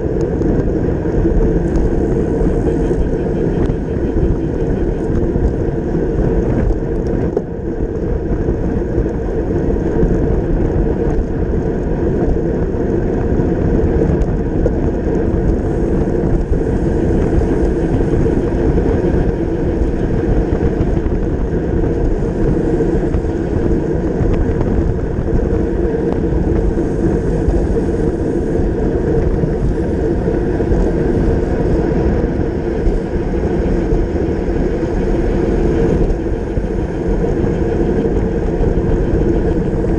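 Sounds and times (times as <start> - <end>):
bicycle tyre and road noise: 0.0 - 39.9
wind rushing over microphone: 0.0 - 39.9.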